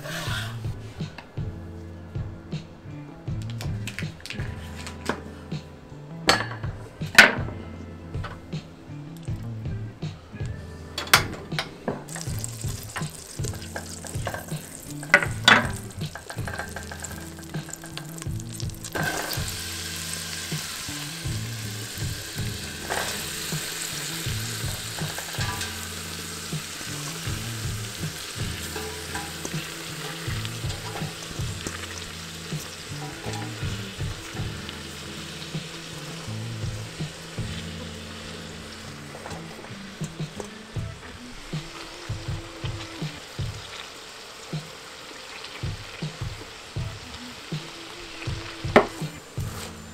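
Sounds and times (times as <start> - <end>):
onions sizzling in oil: 12.1 - 49.9.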